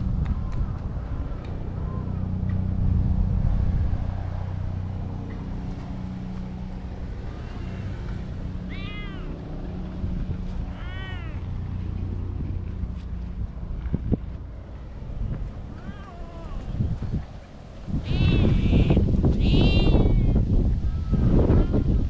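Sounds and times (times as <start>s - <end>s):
steady low rumble: 0.0s - 22.0s
cat meowing: 8.7s - 9.4s, 10.7s - 11.5s, 15.7s - 16.7s, 18.0s - 21.8s.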